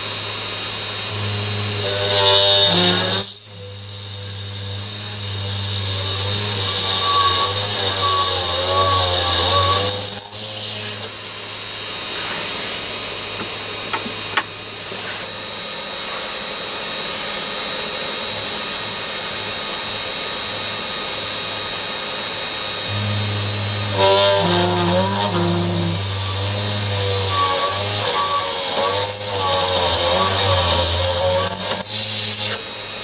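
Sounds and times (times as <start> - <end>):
drill bit cutting metal: 0.2 - 11.2, 22.6 - 32.9
wavering whine with low hum: 22.8 - 32.6.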